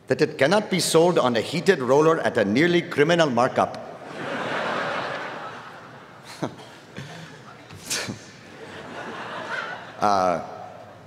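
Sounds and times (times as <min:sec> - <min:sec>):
crowd laughter: 0:04.0 - 0:07.8, 0:08.4 - 0:10.2.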